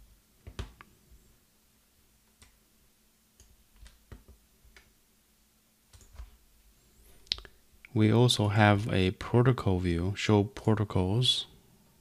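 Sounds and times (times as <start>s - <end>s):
computer mouse clicking: 5.9s - 6.3s.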